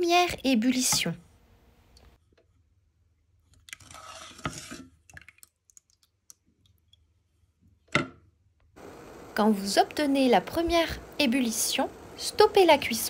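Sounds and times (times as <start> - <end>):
spatula scraping pot: 3.8 - 5.0.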